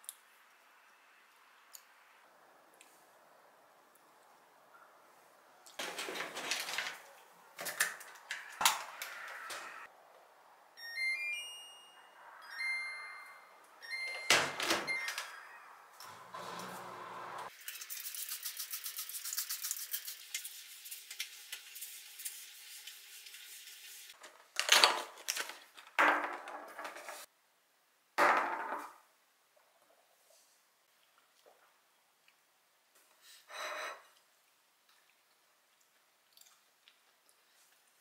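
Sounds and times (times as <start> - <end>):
dishwasher beeping chime: 10.8 - 15.8.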